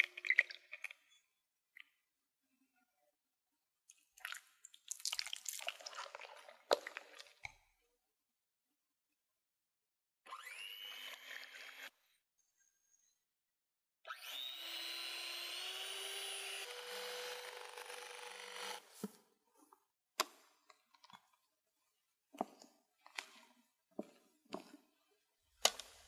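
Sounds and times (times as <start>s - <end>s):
electric hand mixer whining: 14.1s - 18.9s.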